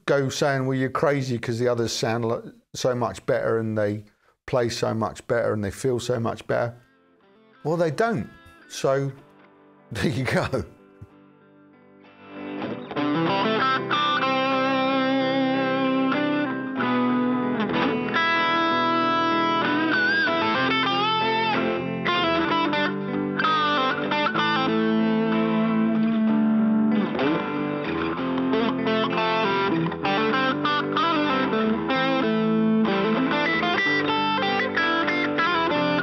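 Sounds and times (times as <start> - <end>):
electric guitar through amplifier: 12.0 - 36.0.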